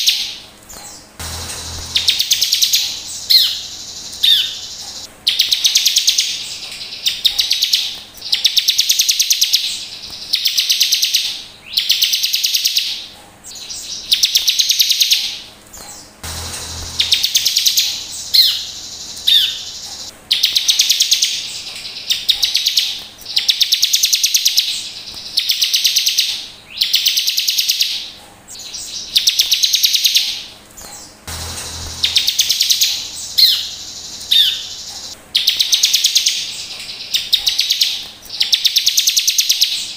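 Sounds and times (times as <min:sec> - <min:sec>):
bird buzzy trilled song: 0:00.0 - 0:39.9
bird sharp sweeping notes: 0:01.2 - 0:05.7, 0:16.2 - 0:20.7, 0:31.3 - 0:35.2.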